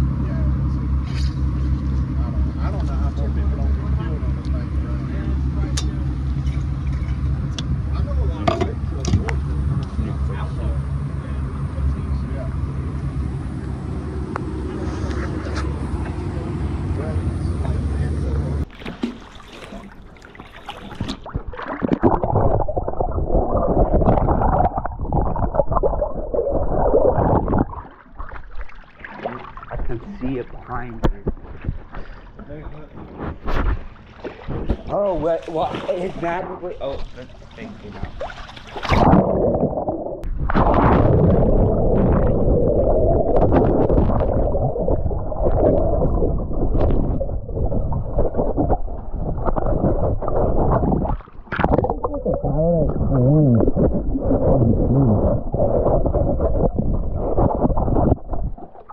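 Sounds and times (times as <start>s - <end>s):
muffled underwater churning: 0.0s - 58.9s
loud splash: 18.6s - 30.2s, 36.9s - 52.4s
underwater clicks: 18.7s - 29.8s, 43.2s - 54.7s.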